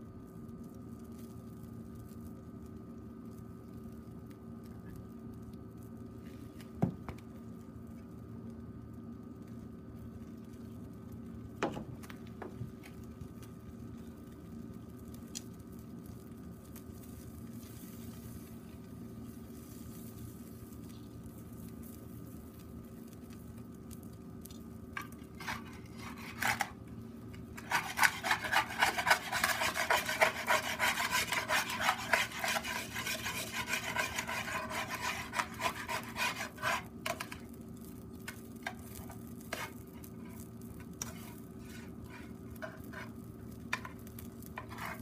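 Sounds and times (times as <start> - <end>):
metal tongs scraping frying pan: 25.4 - 26.8, 27.6 - 37.5.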